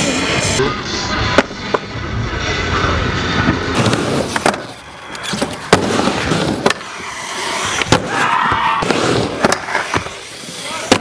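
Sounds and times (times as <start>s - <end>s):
skateboard rolling on concrete: 3.4s - 11.0s.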